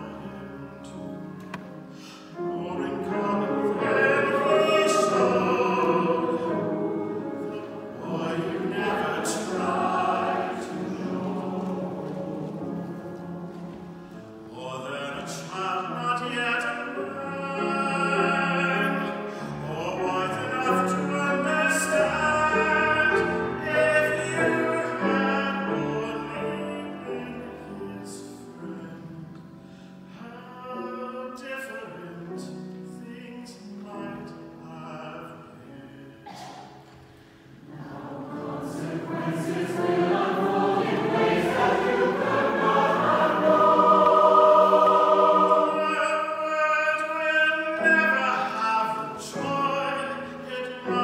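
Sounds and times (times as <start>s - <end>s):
choir singing: 2.3s - 29.5s, 35.2s - 51.0s
instrumental accompaniment: 36.8s - 46.5s.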